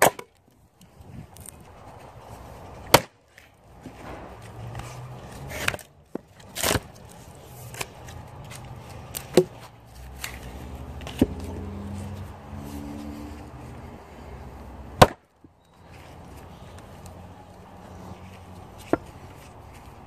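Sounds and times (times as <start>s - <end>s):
wooden knocks of firewood: 0.0s - 0.3s, 2.8s - 3.2s, 9.0s - 9.7s, 11.0s - 11.5s, 14.9s - 15.5s, 18.8s - 19.3s.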